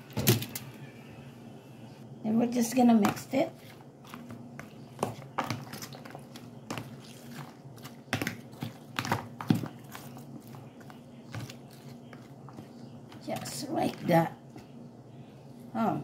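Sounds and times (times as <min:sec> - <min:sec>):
wet squishes of salad mixed by hand: 0:03.0 - 0:14.7.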